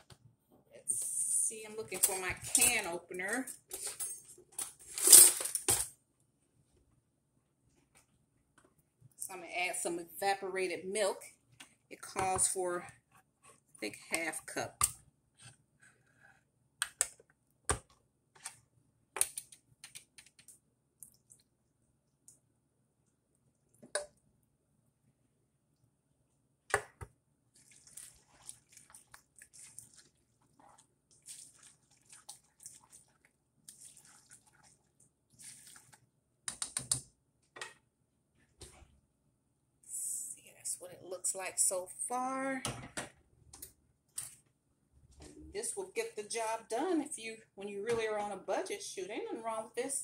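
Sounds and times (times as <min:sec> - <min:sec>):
spatula stirring wet food: 0:11.4 - 0:18.6, 0:26.9 - 0:36.5.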